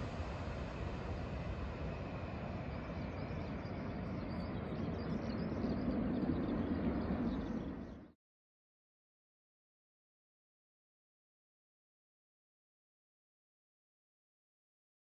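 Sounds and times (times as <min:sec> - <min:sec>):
jet engine rumble: 0:00.0 - 0:08.1.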